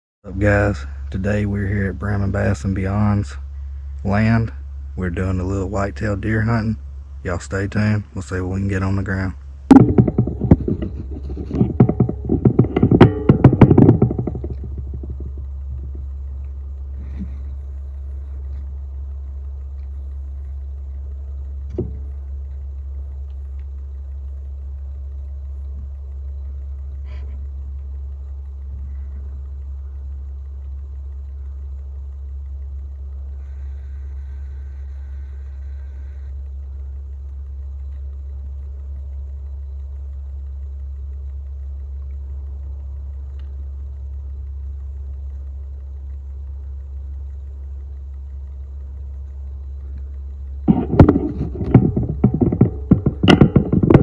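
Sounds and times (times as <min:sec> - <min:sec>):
faint ticks: 0:00.3 - 0:54.0
low rumble: 0:00.3 - 0:54.0.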